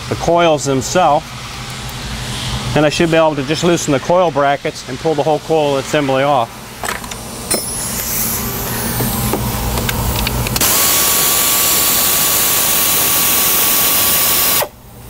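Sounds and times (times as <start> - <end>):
air ratchet running: 7.0 - 14.7.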